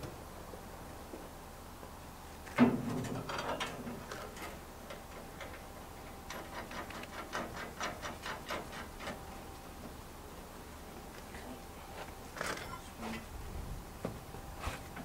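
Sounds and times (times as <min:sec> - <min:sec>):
steel bracket clanking: 0:02.5 - 0:05.7.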